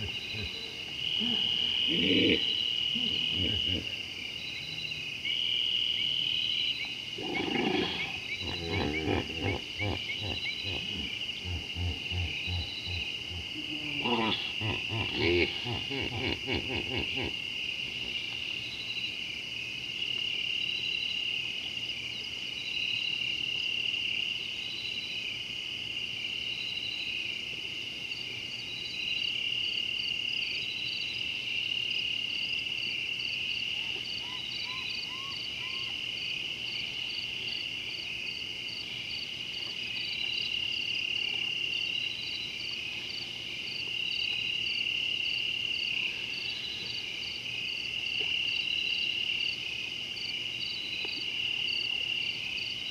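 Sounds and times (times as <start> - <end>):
insect high-pitched trill: 0.0 - 19.3, 28.6 - 52.9
insect chirping: 0.0 - 52.9.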